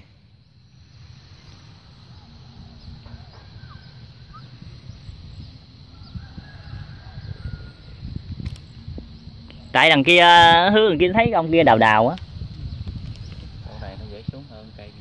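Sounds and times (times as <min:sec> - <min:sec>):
rumble on microphone: 0:00.0 - 0:15.0
bird chirps and whistles: 0:03.1 - 0:06.1.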